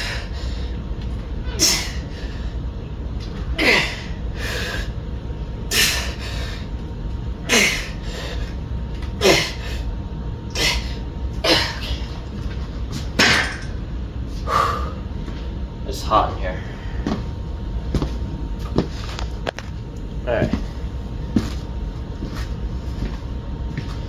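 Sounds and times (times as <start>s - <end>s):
man grunting: 3.6s - 4.2s, 7.4s - 8.0s, 9.2s - 9.6s.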